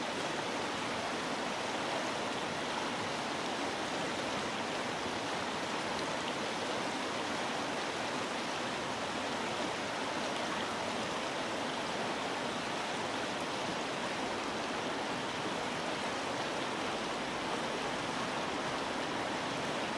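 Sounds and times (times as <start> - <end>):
water flowing over rocks: 0.0 - 19.9.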